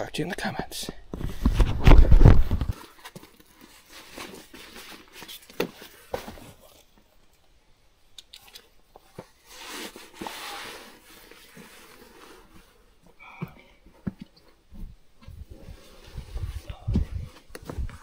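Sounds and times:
microphone handling rumble: 0:01.2 - 0:02.7, 0:16.2 - 0:18.0.

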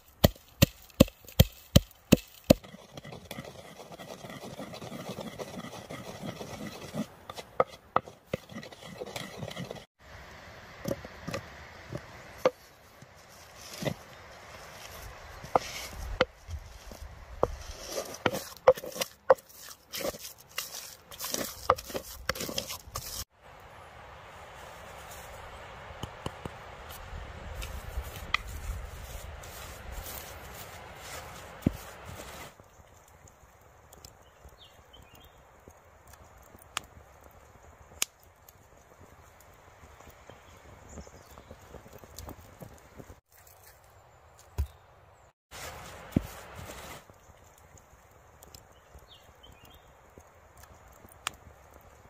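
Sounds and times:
wooden pestle mashing butter: 0:00.2 - 0:09.9, 0:17.4 - 0:23.2
fire crackling and popping: 0:25.9 - 0:43.4, 0:45.5 - 0:52.0.

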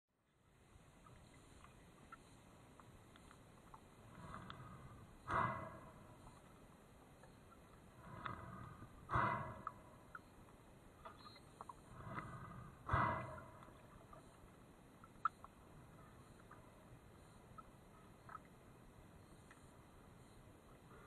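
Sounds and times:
diver breathing underwater: 0:04.0 - 0:06.5, 0:08.0 - 0:10.3, 0:11.8 - 0:14.2.

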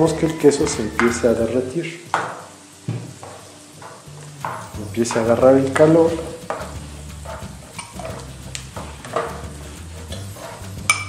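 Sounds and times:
spoon scraping frying pan: 0:02.2 - 0:11.0.

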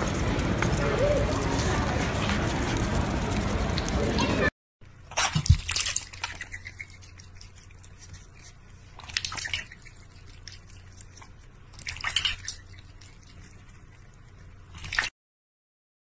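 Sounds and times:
faint low hum: 0:00.0 - 0:15.1
cat splashing water in a bowl: 0:05.0 - 0:15.1.

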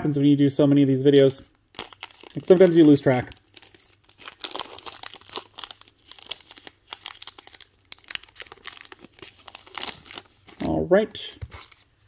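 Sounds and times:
foil wrapper crinkling and tearing: 0:01.6 - 0:10.8.

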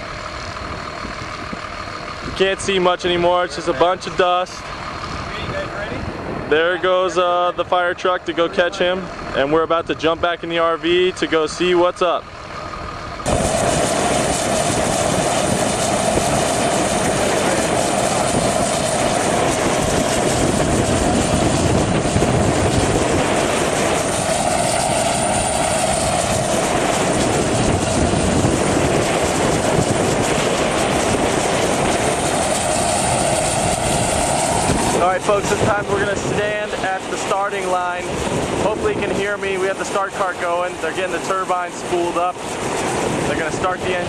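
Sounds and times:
jet start cart whining: 0:12.4 - 0:44.0
rush of air: 0:13.2 - 0:39.9, 0:41.6 - 0:44.0.

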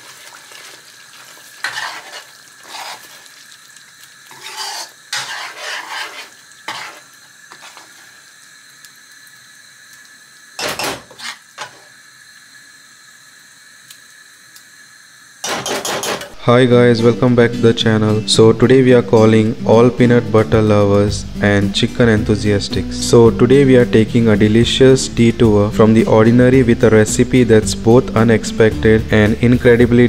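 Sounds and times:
curry sizzling: 0:00.0 - 0:30.0
spoon scraping metal pot: 0:01.6 - 0:03.2, 0:04.3 - 0:07.9, 0:10.6 - 0:11.8.

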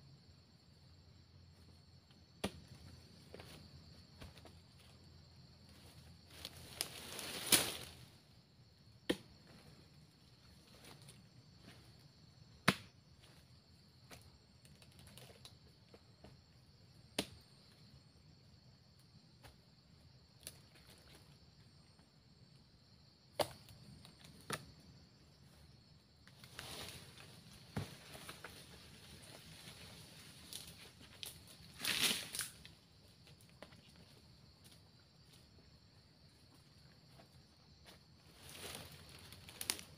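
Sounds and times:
insects droning: 0:00.0 - 0:39.9
rustling through grass: 0:06.2 - 0:08.1, 0:26.4 - 0:32.6.

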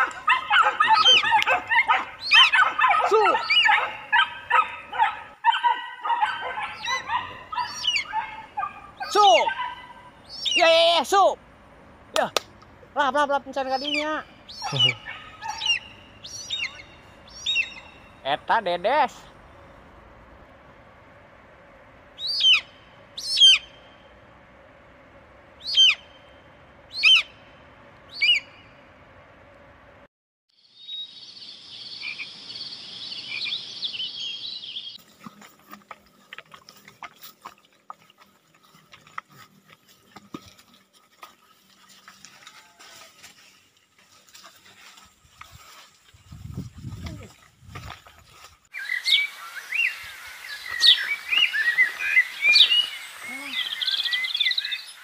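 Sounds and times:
dogs yelping and barking: 0:00.0 - 0:10.7, 0:13.7 - 0:18.2, 0:22.1 - 0:23.9, 0:25.6 - 0:26.2, 0:26.9 - 0:27.4, 0:28.1 - 0:28.6
animal high-pitched calls: 0:00.0 - 0:10.8, 0:13.6 - 0:18.2, 0:22.2 - 0:23.8, 0:25.6 - 0:26.2, 0:26.9 - 0:27.4, 0:28.1 - 0:28.6.

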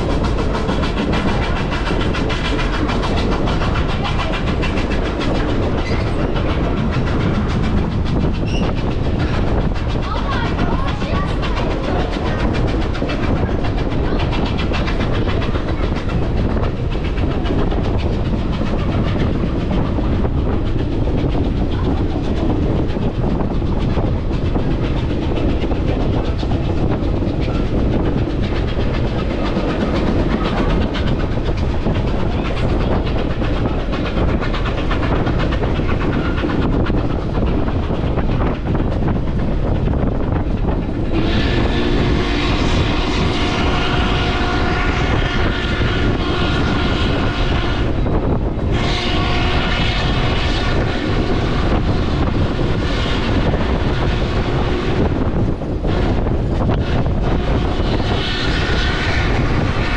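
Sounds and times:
train wheels clacking on rails: 0:00.0 - 0:59.9
train horn: 0:41.1 - 0:59.9.

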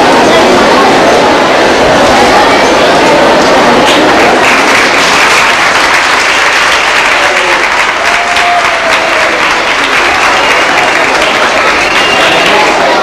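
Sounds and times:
audience applauding: 0:03.8 - 0:13.0.

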